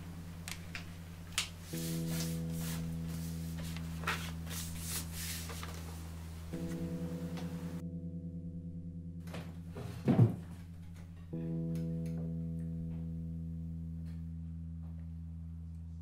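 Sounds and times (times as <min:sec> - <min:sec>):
low pulsing musical tone: 0:00.0 - 0:16.0
paper rustling: 0:03.6 - 0:06.2
dull thump: 0:09.3 - 0:10.6.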